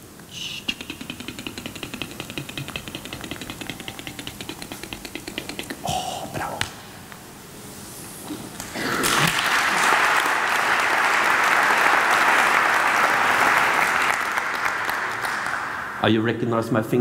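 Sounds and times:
audience applauding: 8.6s - 16.2s.

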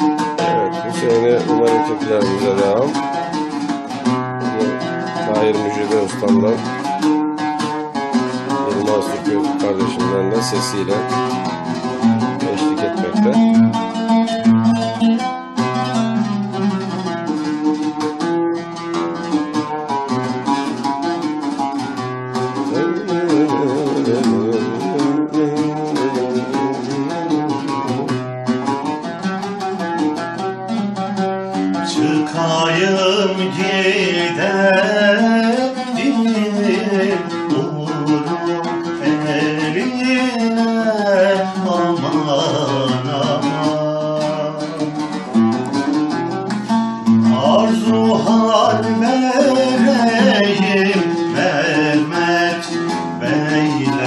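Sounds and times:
plucked string melody: 0.0s - 54.0s
person singing: 0.4s - 3.0s, 4.4s - 6.6s, 22.3s - 28.1s, 31.7s - 46.0s, 47.1s - 54.0s.

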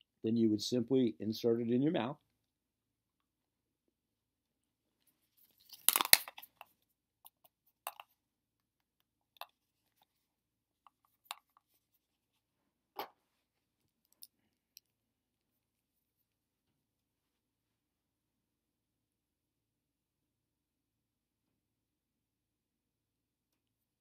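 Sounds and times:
crackly burst of clicks: 5.7s - 6.5s.

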